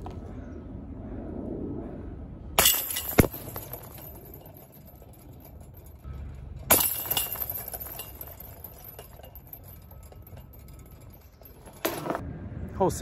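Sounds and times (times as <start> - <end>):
disc clinking against steel chains: 2.6 - 12.2.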